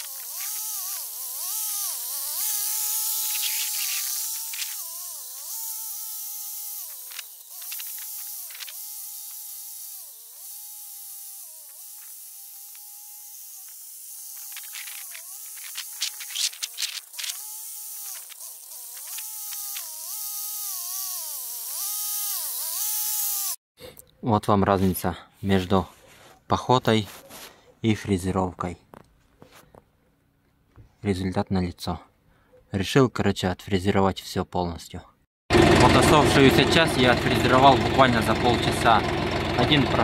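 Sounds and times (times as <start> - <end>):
tractor engine buzzing under load: 35.5 - 40.0.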